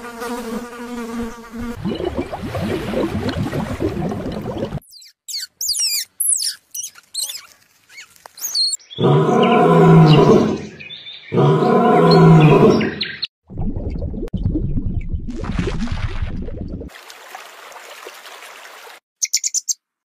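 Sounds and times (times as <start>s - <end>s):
squirrel chirping: 4.8s - 8.9s, 19.2s - 19.8s
lion roaring: 9.0s - 10.7s, 11.3s - 13.0s.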